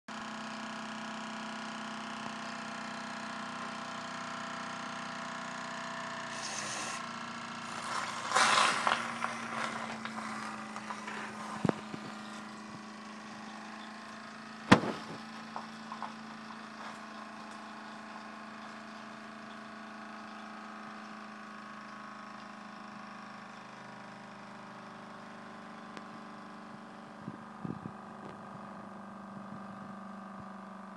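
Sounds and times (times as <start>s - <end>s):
steady hum: 6.2s - 19.6s
loud crackling hiss: 6.3s - 12.5s
sharp bang: 14.7s - 15.3s.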